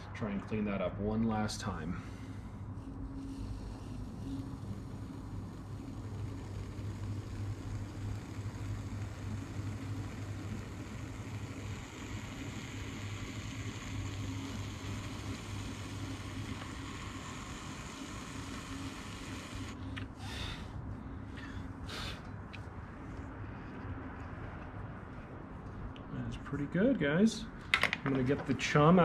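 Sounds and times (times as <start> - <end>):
pottery wheel motor humming: 1.2 - 25.2
trimming tool scraping clay: 2.7 - 19.8.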